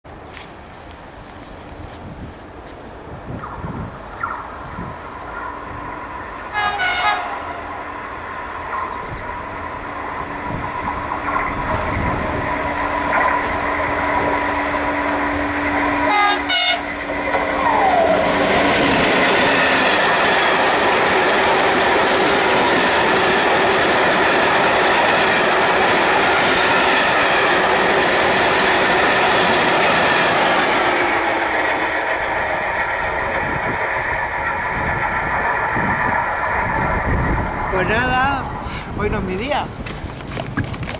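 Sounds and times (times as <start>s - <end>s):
locomotive running tone: 0.7s - 40.2s
train horn: 6.5s - 7.7s, 16.0s - 17.0s
train wheel clatter: 8.2s - 39.0s, 39.7s - 40.9s.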